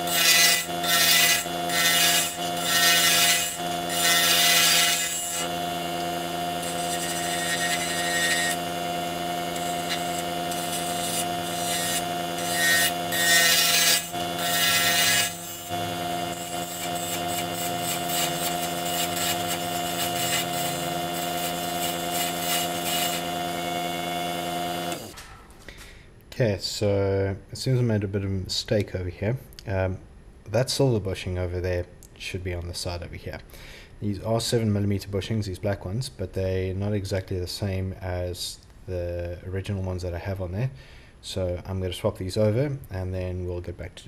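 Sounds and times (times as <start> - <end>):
lathe motor whining: 0.0 - 25.2
turning tool scraping wood: 0.0 - 25.2.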